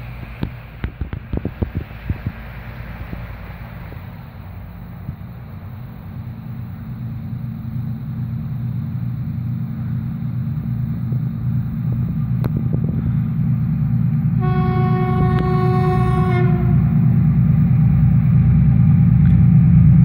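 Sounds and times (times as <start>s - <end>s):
diesel locomotive engine rumble: 0.0s - 20.0s
locomotive horn long note: 14.4s - 17.1s.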